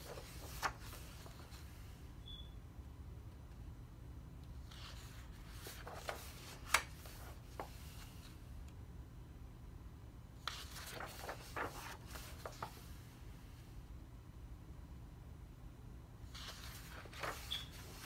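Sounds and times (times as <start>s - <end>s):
paper pages rustling: 0.0s - 1.8s, 4.6s - 8.4s, 10.4s - 13.0s, 16.3s - 18.0s
sharp paper snap: 6.6s - 7.0s.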